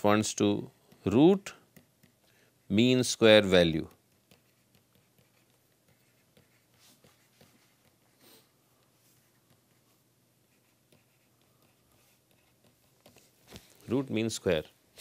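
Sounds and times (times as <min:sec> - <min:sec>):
pen writing scratches and taps: 0:00.9 - 0:02.3, 0:04.0 - 0:08.2, 0:09.2 - 0:09.9, 0:10.5 - 0:13.3.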